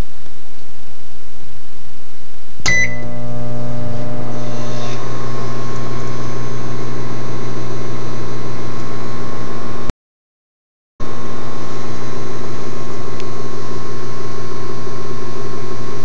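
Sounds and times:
loud electrical hum: 0:00.0 - 0:09.9, 0:11.0 - 0:16.0
microwave oven click: 0:02.7 - 0:04.4
microwave oven hiss: 0:02.7 - 0:09.9.

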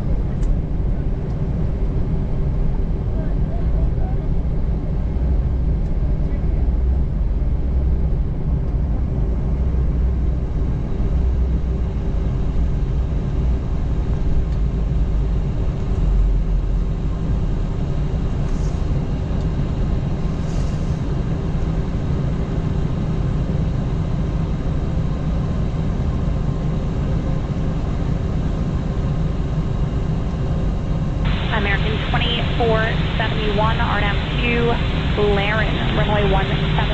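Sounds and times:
airplane cabin rumble: 0:00.0 - 0:36.9
steady hum: 0:30.6 - 0:36.9.

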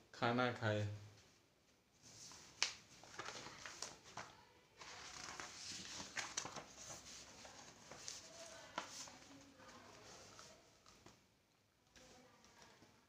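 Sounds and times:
book pages flipping and rustling: 0:02.0 - 0:11.2.

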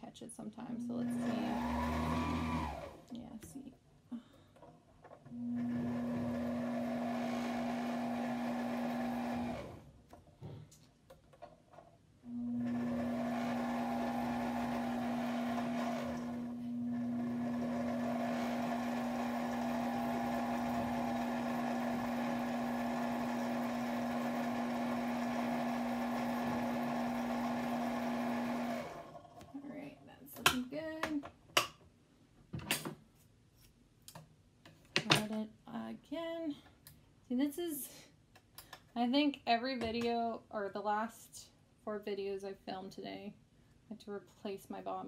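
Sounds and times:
sewing machine motor humming: 0:01.0 - 0:03.0, 0:05.4 - 0:09.9, 0:12.3 - 0:29.3.

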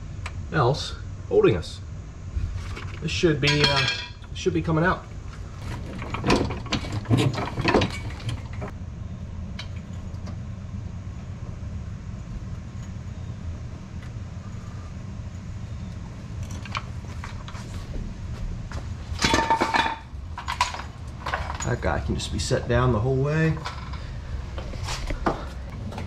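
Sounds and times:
steady low hum: 0:00.0 - 0:26.0
metal clinks and knocks: 0:03.4 - 0:04.3, 0:05.6 - 0:08.7, 0:19.1 - 0:22.1.

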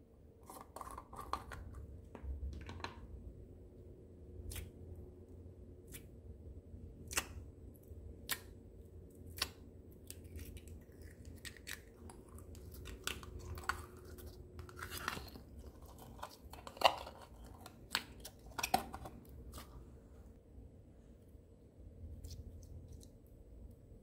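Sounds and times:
sticky slime clicks and pops: 0:07.0 - 0:07.4.

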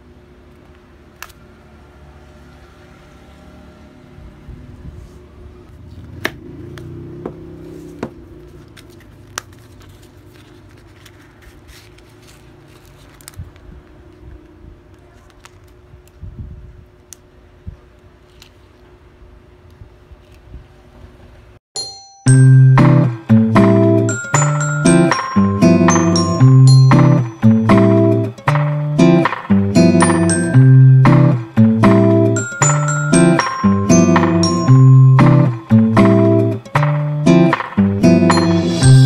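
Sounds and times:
paper envelope unfolding: 0:08.6 - 0:13.6.

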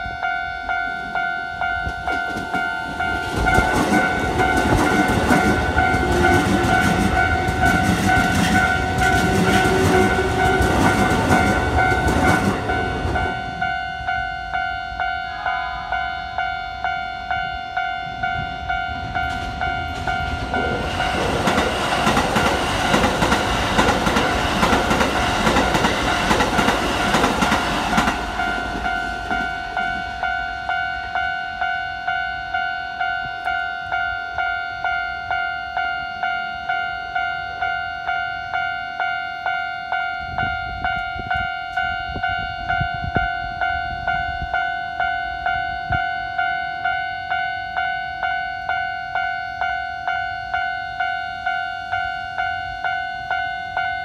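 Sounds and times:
level-crossing alarm dinging: 0:00.0 - 0:54.0
train rumbling and clattering: 0:00.8 - 0:31.8, 0:40.2 - 0:46.1.

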